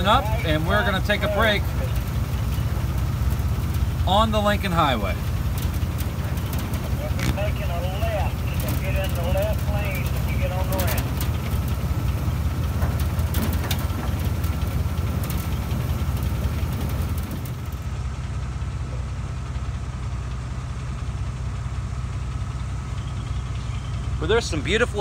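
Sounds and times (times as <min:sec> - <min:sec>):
rattles and knocks: 0:00.0 - 0:17.9
jeep engine running: 0:00.0 - 0:25.0.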